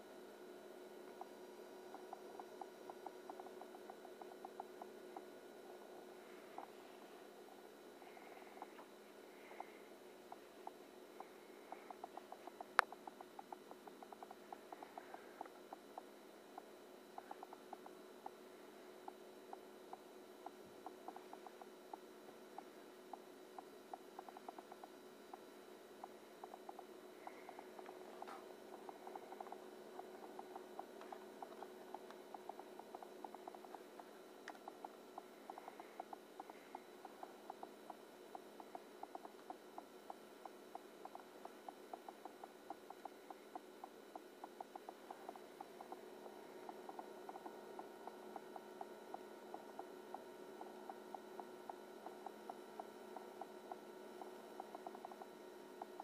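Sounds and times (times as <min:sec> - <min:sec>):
high-pitched transformer hum: 0:00.0 - 0:56.0
soft ticks: 0:26.0 - 0:56.0.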